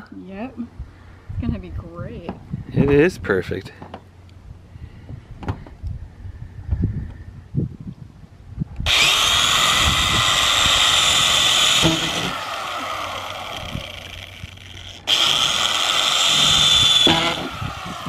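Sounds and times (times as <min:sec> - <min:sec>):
electric drill whining: 0:08.8 - 0:18.0.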